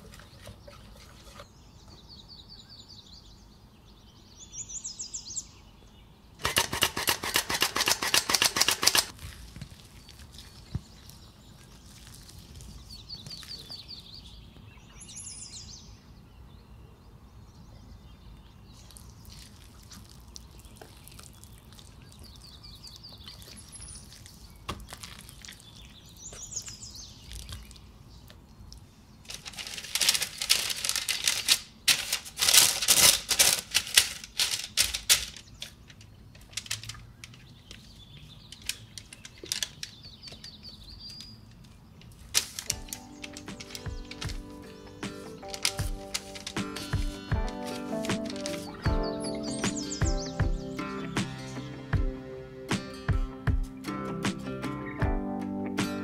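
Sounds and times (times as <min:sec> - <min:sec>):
parchment paper crinkling: 0:07.2 - 0:14.3, 0:29.2 - 0:48.9
bird chirps: 0:12.8 - 0:19.4, 0:42.7 - 0:52.2
flour sifter clicking: 0:42.1 - 0:48.9.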